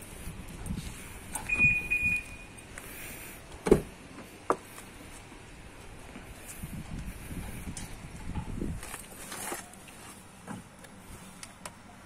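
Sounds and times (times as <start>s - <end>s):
car alarm chirping beeps: 1.4s - 2.6s.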